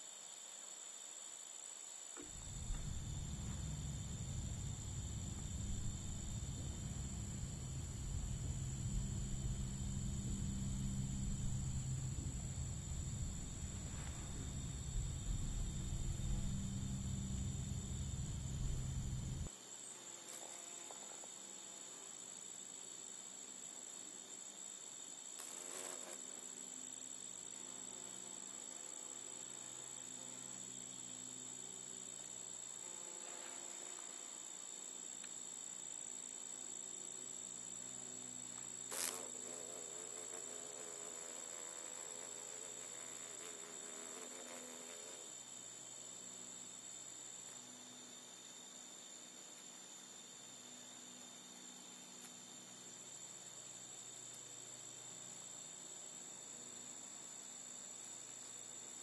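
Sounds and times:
crickets trilling: 0.0s - 59.0s
low rumble: 2.4s - 19.5s.

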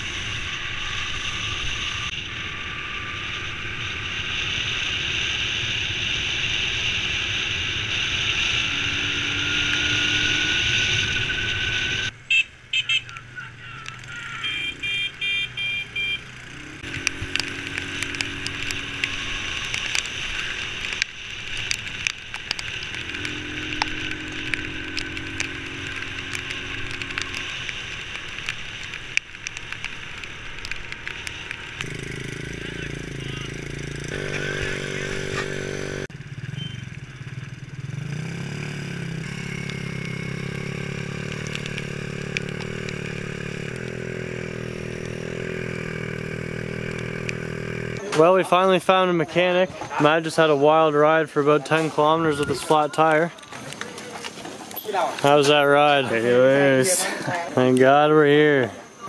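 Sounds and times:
motorbike engine running: 13.9s - 48.1s.

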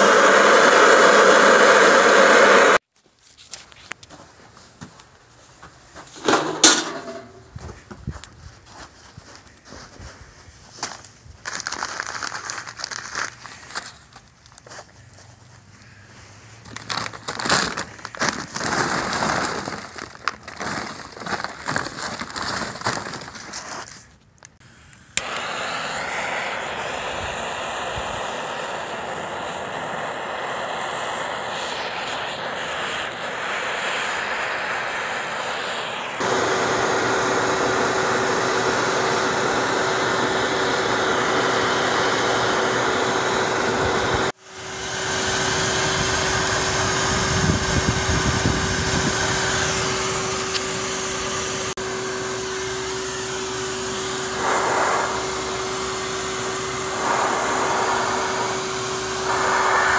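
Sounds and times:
motor whine: 0.0s - 2.8s, 24.6s - 59.9s
rush of air from blower: 0.0s - 2.8s, 24.6s - 59.9s.

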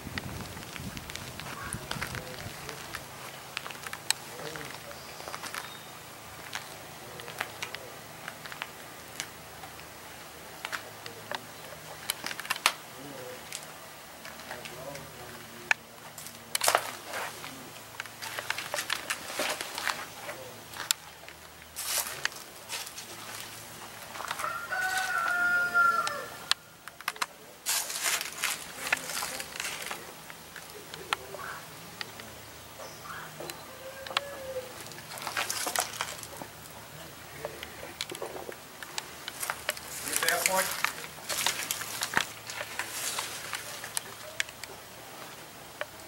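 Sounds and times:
light irregular clicks and ticks: 0.1s - 25.4s, 26.0s - 46.0s
rooster crowing: 24.2s - 26.6s, 33.0s - 34.8s.

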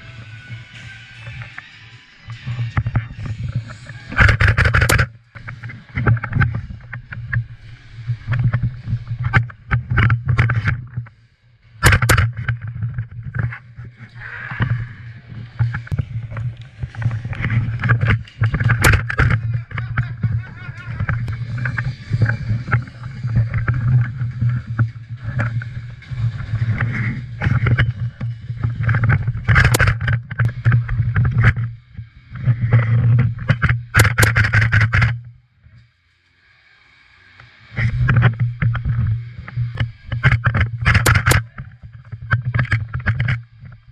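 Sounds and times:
steady low hum: 0.0s - 43.9s
rustling against microphone: 2.3s - 11.2s, 11.8s - 35.3s, 37.7s - 43.9s
sharp cracks: 3.6s - 7.4s, 11.8s - 31.7s, 33.5s - 35.2s, 39.8s - 43.4s.

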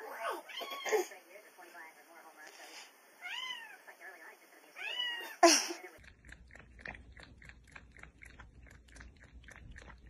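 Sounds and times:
cat lapping liquid: 5.8s - 10.0s.

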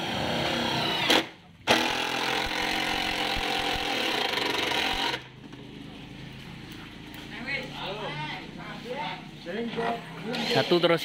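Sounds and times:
cordless drill whining: 0.0s - 5.2s.

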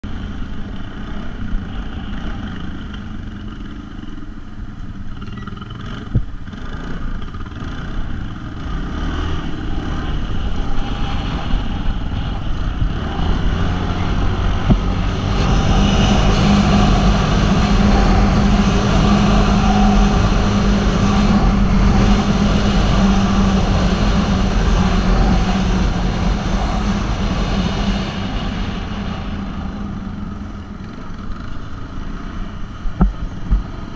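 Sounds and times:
atv engine running: 0.0s - 33.9s
wind noise: 8.0s - 33.9s.

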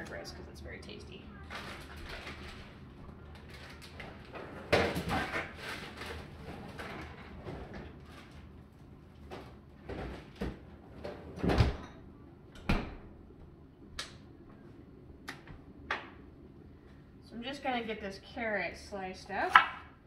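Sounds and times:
kitchen knocks and clunks: 9.3s - 12.0s.

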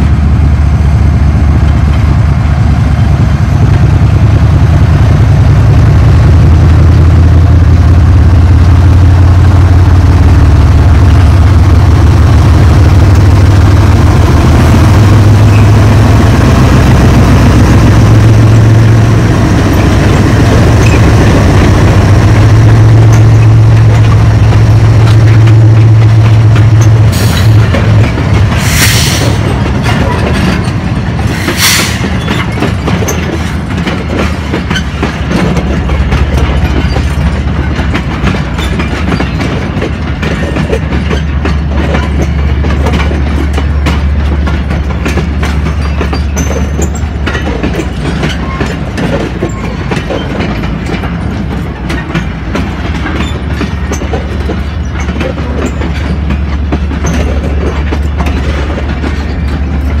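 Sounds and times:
freight train rolling past: 0.0s - 60.0s
wheels knocking over rail joints: 32.0s - 60.0s.

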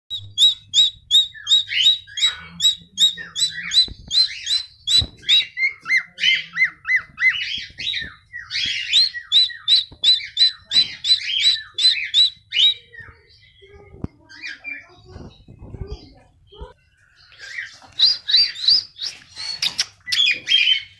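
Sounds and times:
cockatiel whistled chirps: 0.1s - 12.8s.

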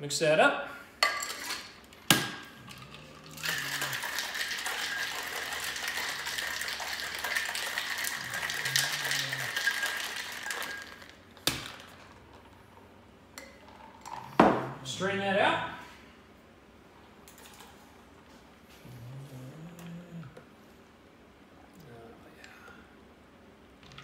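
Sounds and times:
ice rattling in a cocktail shaker: 2.6s - 12.5s.

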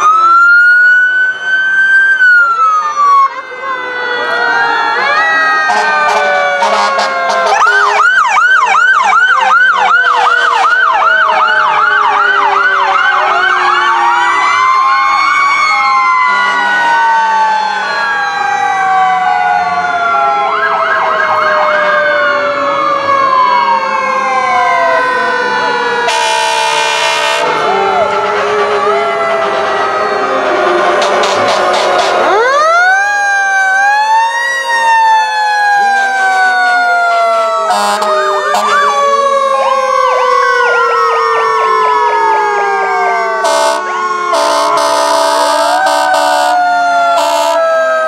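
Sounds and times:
fast yelping siren: 0.0s - 48.0s
wailing siren: 0.0s - 48.0s
short harsh horn blast: 26.1s - 27.5s, 31.0s - 32.3s, 43.4s - 46.5s.

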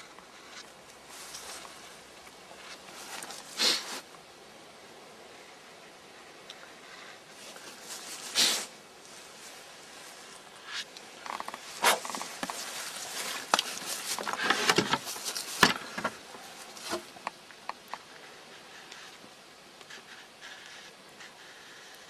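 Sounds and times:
marker scraping and squeaking on log: 19.8s - 22.0s.

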